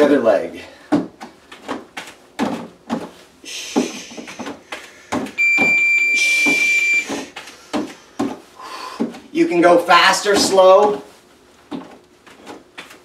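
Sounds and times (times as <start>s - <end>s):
bare feet stepping on step: 0.8s - 9.4s, 10.2s - 13.0s
high electronic beep: 5.4s - 7.2s.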